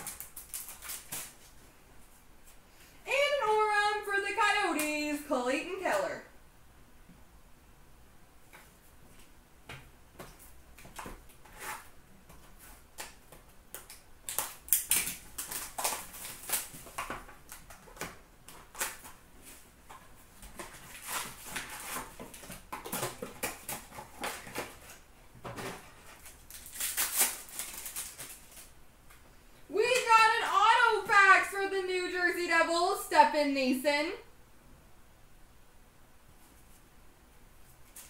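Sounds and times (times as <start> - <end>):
wrappers crinkling and tearing: 0.0 - 1.6, 13.8 - 19.2, 20.5 - 25.0, 25.8 - 28.8.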